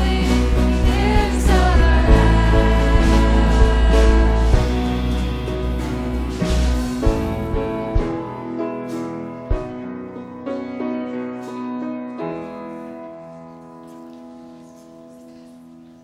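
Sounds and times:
low thumps: 0.0s - 8.6s, 9.4s - 10.0s
keyboard playing slow chords: 0.0s - 13.9s.

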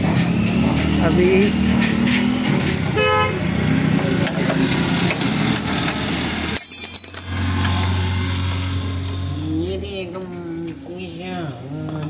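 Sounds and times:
street traffic hum: 0.0s - 12.0s
vehicle horn toot: 2.9s - 3.5s.

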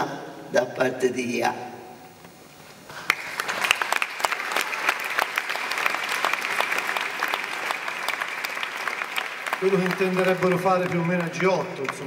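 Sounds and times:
audience applause: 2.9s - 12.0s.

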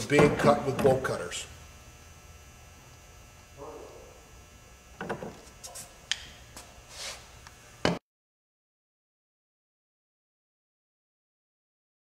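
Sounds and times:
low electrical hum: 0.0s - 8.0s.

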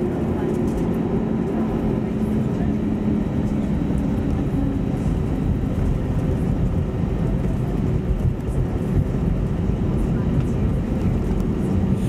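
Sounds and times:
airliner cabin noise: 0.0s - 12.0s.

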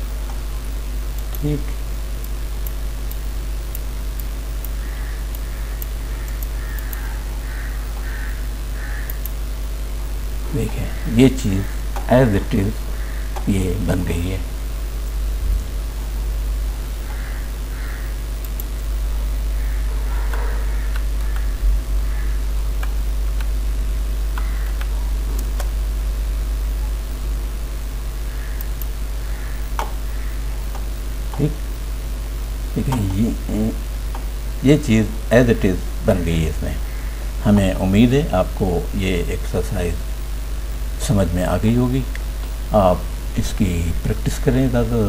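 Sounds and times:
low electrical hum: 0.0s - 45.0s
crow cawing: 4.8s - 9.2s, 10.7s - 11.9s, 12.7s - 13.5s, 17.0s - 18.3s, 19.5s - 22.5s, 24.4s - 25.1s, 28.2s - 30.7s, 36.8s - 37.3s.

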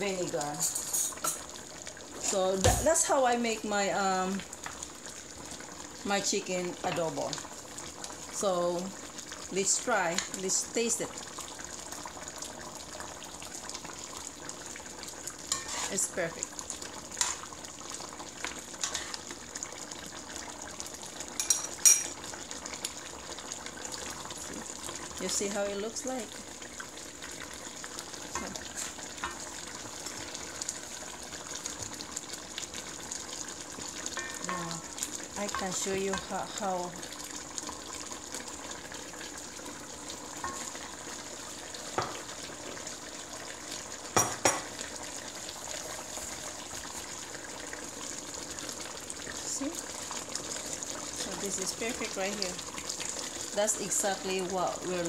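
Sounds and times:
sauce simmering and sizzling: 0.0s - 55.0s
metal spoon scraping a pot: 15.6s - 16.0s.

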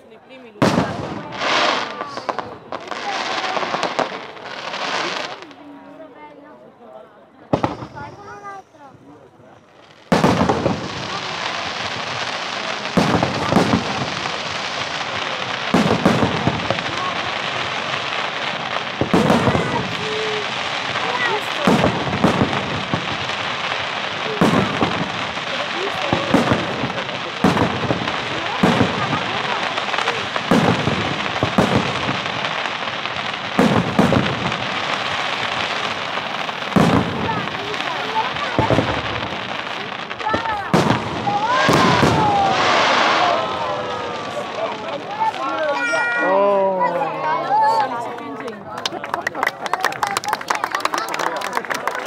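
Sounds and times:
fireworks crackling hiss: 0.0s - 6.6s, 7.5s - 48.0s
firework shells bursting: 9.7s - 46.2s.

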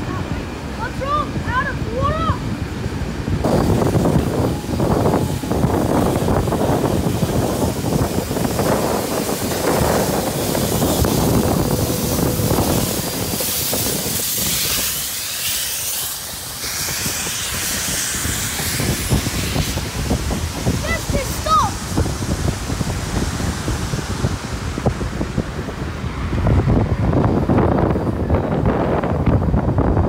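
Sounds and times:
train wheels rumbling on rails: 0.0s - 30.0s
loud steam hiss: 3.0s - 26.0s.

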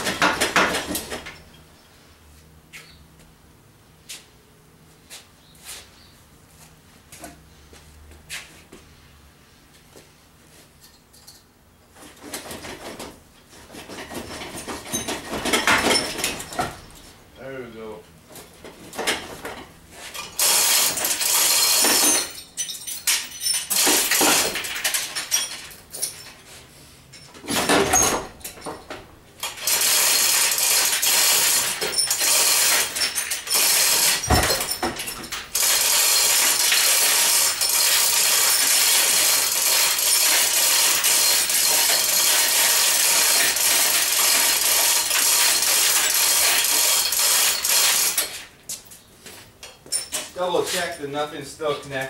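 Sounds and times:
chain hoist ratcheting: 13.8s - 16.8s, 20.2s - 26.4s, 29.4s - 48.5s
chain rattling: 20.2s - 26.4s, 29.4s - 48.5s.

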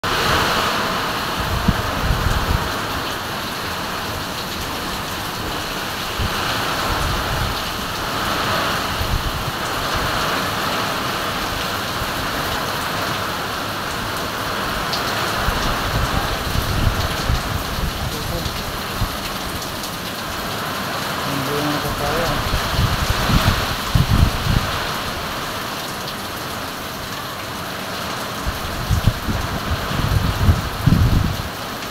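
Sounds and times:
low rumbling buffets: 0.0s - 10.4s
strong wind: 0.0s - 27.0s, 28.2s - 31.9s
heavy rain: 0.0s - 31.9s.

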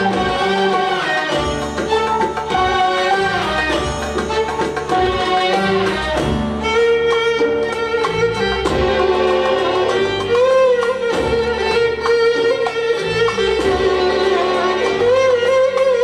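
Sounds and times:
violin melody: 0.0s - 16.0s.

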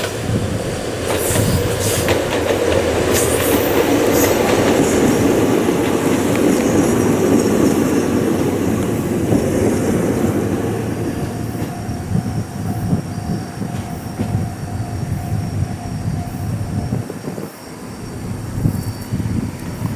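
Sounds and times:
electric train wheel rumble: 0.0s - 19.9s
faint high whine: 10.2s - 19.9s.

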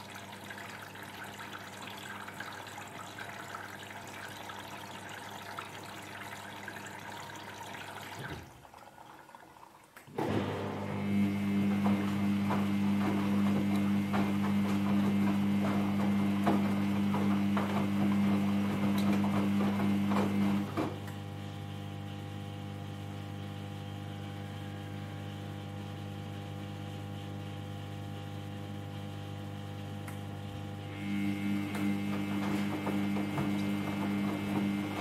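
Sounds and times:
washing machine motor humming: 0.0s - 35.0s
clothes knocking and sloshing: 31.9s - 35.0s.

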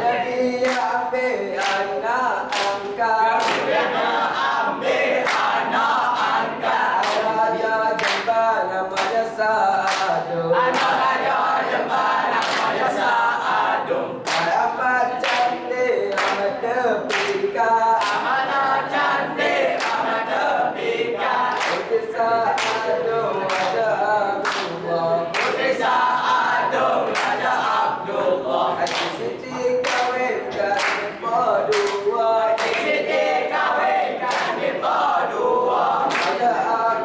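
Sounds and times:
chorus of young voices singing: 0.0s - 37.0s
sharp hand claps: 0.5s - 3.8s, 5.2s - 5.7s, 7.0s - 11.2s, 12.3s - 12.9s, 14.2s - 14.6s, 15.2s - 18.4s, 19.7s - 20.2s, 21.5s - 26.0s, 27.1s - 27.5s, 28.8s - 34.7s, 36.0s - 36.6s.

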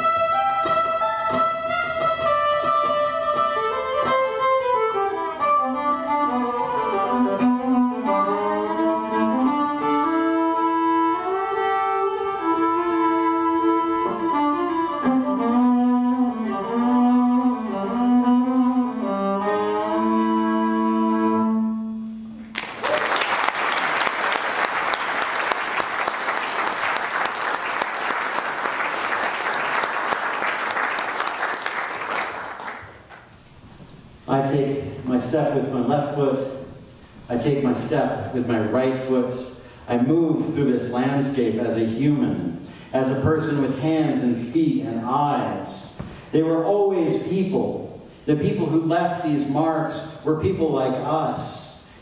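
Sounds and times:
solo violin slow melody: 0.0s - 22.3s
audience applause: 22.5s - 33.3s.

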